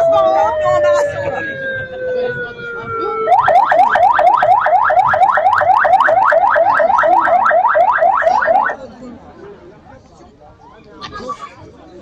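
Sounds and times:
electronic siren yelping: 0:00.0 - 0:08.8.

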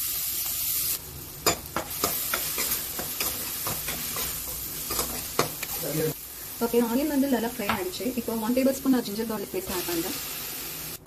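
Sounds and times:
onions sizzling in hot oil: 0:00.0 - 0:11.0
spoon clicking and scraping pan: 0:01.4 - 0:05.8.

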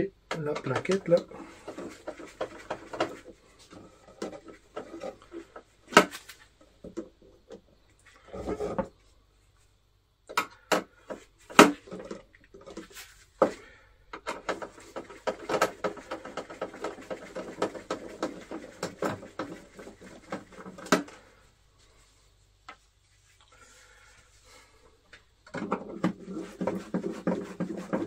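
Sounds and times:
sharp clicks and knocks: 0:00.3 - 0:03.3, 0:10.3 - 0:21.2.

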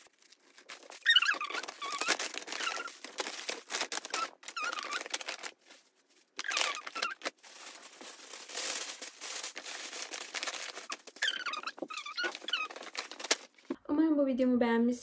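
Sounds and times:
tissue paper crinkling: 0:00.0 - 0:13.8
short high squeaks: 0:01.0 - 0:03.0, 0:06.4 - 0:07.2, 0:10.9 - 0:13.0.

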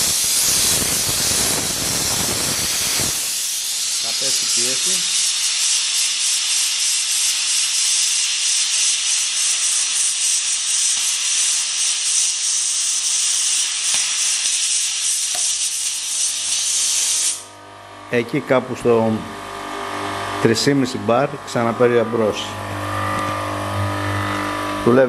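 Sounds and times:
compressed air hissing from valve: 0:00.0 - 0:17.6.

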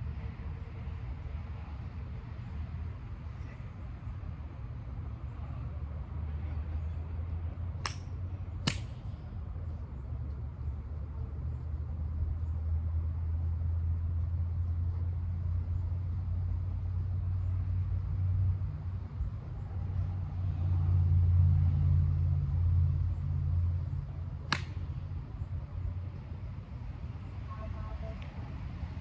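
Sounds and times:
low outdoor rumble: 0:00.0 - 0:29.0
sharp crack: 0:07.8 - 0:09.0, 0:24.4 - 0:24.9.

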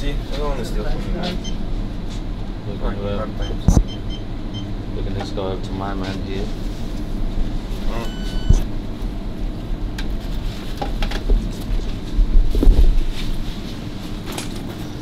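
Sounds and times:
steady low hum: 0:00.0 - 0:15.0
short electronic beep: 0:08.0 - 0:08.6.

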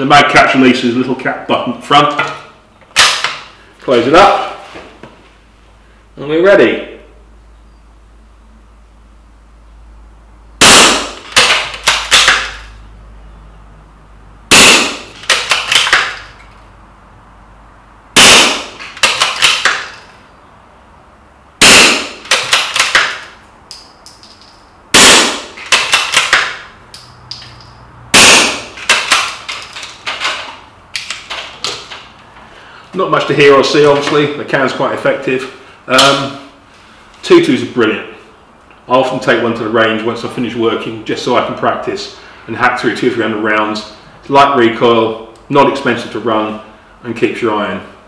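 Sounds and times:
suppressed rifle shots: 0:10.6 - 0:12.6, 0:14.5 - 0:16.1, 0:18.2 - 0:19.8, 0:21.6 - 0:23.1, 0:25.0 - 0:26.5, 0:28.2 - 0:29.3.

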